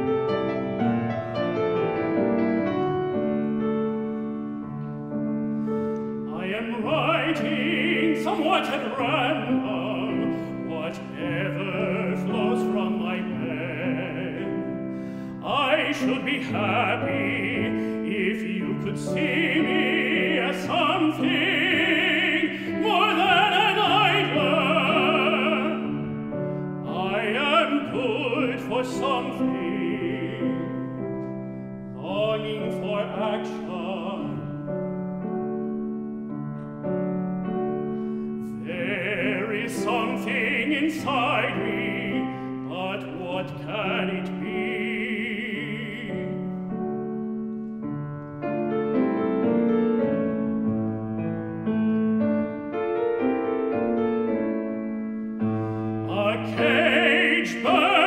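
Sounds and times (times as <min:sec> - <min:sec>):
piano accompaniment: 0:00.0 - 0:58.0
tenor singing with vibrato: 0:06.3 - 0:30.9, 0:32.0 - 0:34.6, 0:38.5 - 0:46.6, 0:55.7 - 0:58.0.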